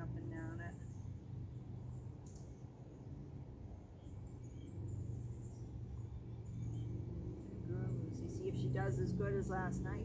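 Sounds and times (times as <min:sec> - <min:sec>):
steady low hum: 0:00.0 - 0:10.0
faint bird chirps: 0:03.8 - 0:07.0.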